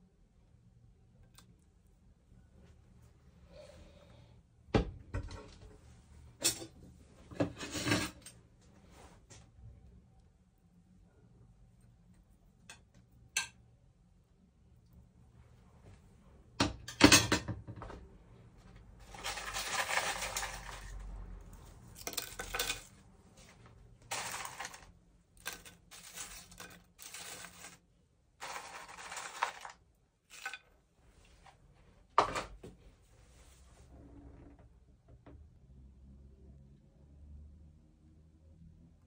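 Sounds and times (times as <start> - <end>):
dry rustling and crackling chips: 19.0 - 21.2, 21.9 - 23.0, 24.0 - 27.8, 28.4 - 30.6.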